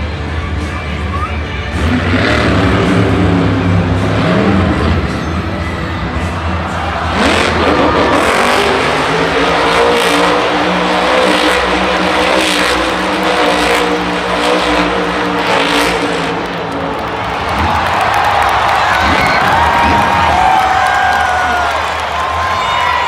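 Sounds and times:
truck engine at high revs: 1.6s - 22.0s.

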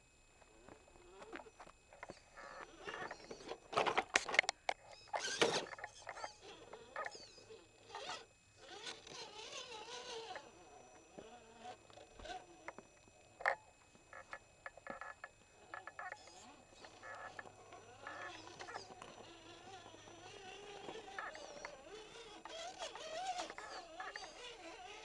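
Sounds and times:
toy car tyres scraping on rock: 5.1s - 12.7s, 16.0s - 25.0s.

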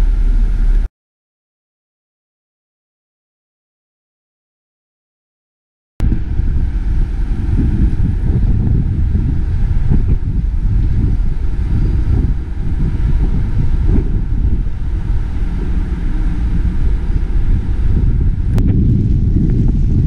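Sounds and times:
wind buffeting microphone: 6.0s - 20.0s.

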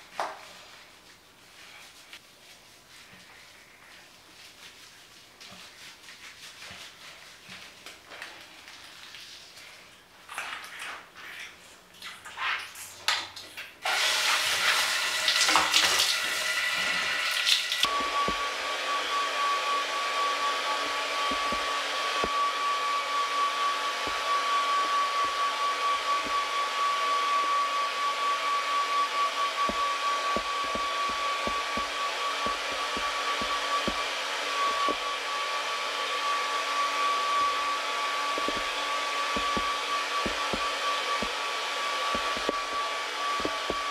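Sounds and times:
shower water splashing: 13.8s - 18.5s
hair dryer whining: 13.9s - 43.9s.

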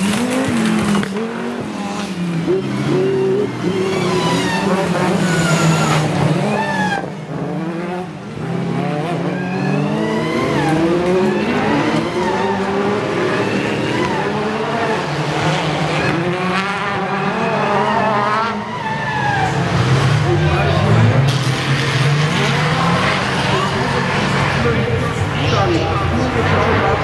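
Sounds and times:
race car engines revving: 0.0s - 27.0s.

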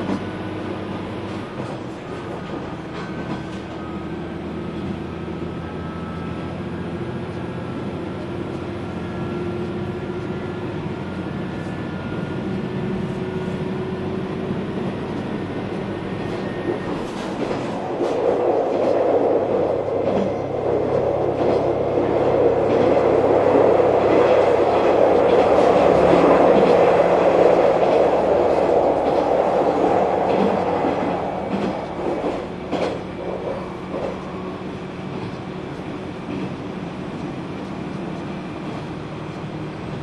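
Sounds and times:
diesel engine drone: 0.0s - 17.1s
wheel and rail rumble: 0.0s - 40.0s.

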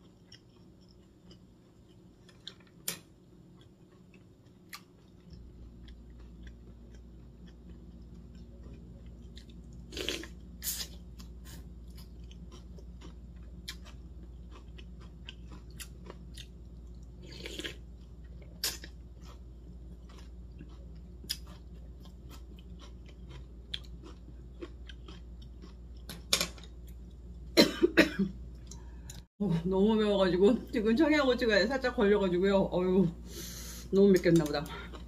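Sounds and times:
chewing crisp food: 0.0s - 27.4s, 34.2s - 35.0s
cucumber crunches: 18.5s - 19.4s
person coughing: 27.6s - 28.4s.

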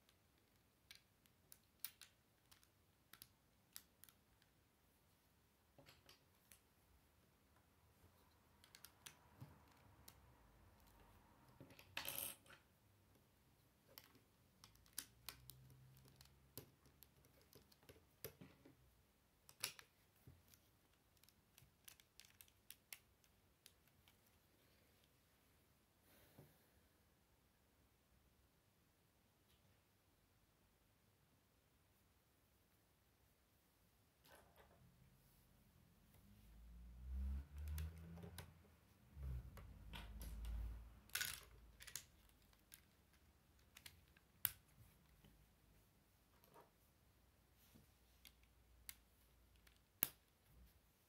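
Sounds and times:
plastic bricks clicking: 41.1s - 44.6s.

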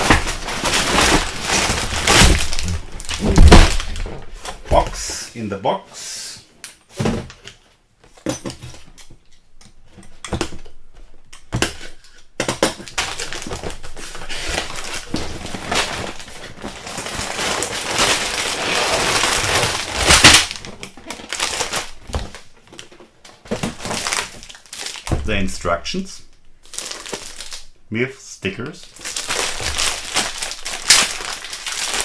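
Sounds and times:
cardboard rubbing and rustling: 0.0s - 5.1s, 12.9s - 25.0s.

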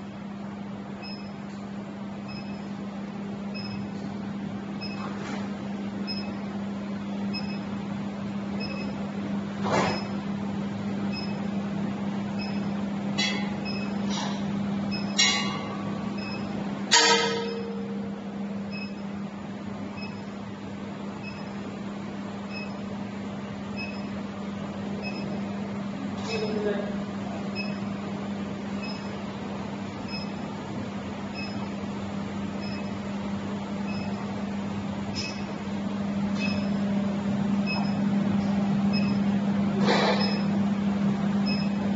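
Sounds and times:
induction heater humming: 0.0s - 41.9s
short metallic ring: 16.9s - 18.0s.

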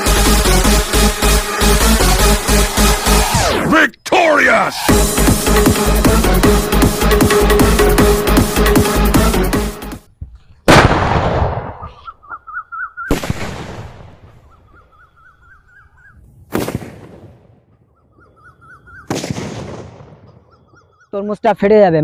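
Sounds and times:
firecrackers exploding: 10.7s - 12.0s, 13.1s - 14.4s, 16.5s - 17.6s, 19.1s - 20.3s.

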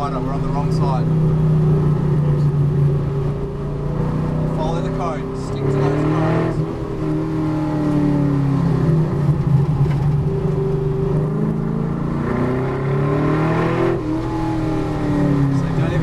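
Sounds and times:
race car engine from cabin: 0.0s - 16.0s.

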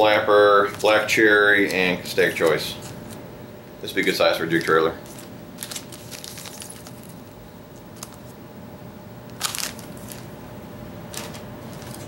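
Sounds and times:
plastic packages crinkling: 4.5s - 7.2s, 7.9s - 8.4s, 9.3s - 10.3s, 11.1s - 12.0s.

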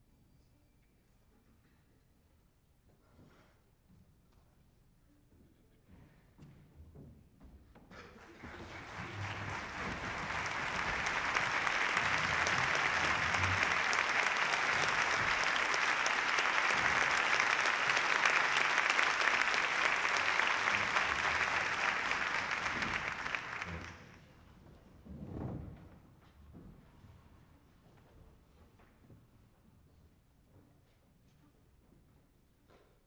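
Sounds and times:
audience applauding: 8.2s - 24.2s.

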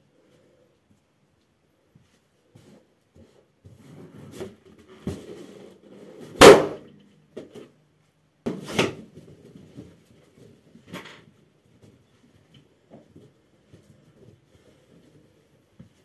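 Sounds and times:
shuffling and soft knocks: 0.1s - 6.3s, 7.0s - 16.0s
balloon bursting: 6.4s - 6.8s
sharp crack: 6.4s - 6.9s.

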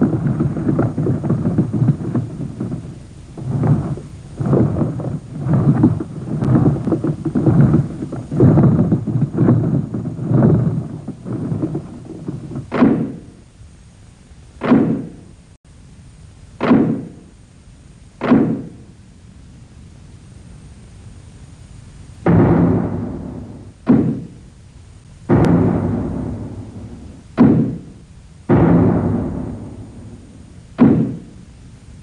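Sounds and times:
cartoon low rumbling thuds: 0.0s - 13.4s, 14.6s - 15.3s, 16.6s - 17.2s, 18.2s - 18.8s, 22.2s - 24.5s, 25.2s - 31.4s
cartoon sharp thumps: 11.2s - 13.3s, 14.6s - 15.2s, 16.6s - 17.2s, 18.2s - 18.8s, 22.3s - 24.4s, 25.3s - 31.4s.

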